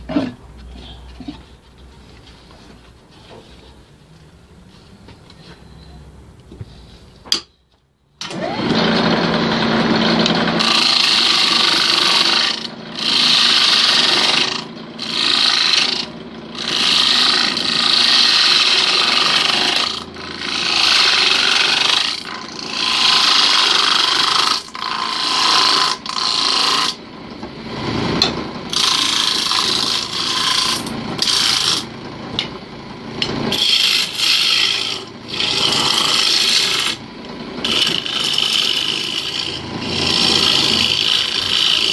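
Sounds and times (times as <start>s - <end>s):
lathe tool scraping wood: 8.3s - 32.1s, 33.2s - 41.9s.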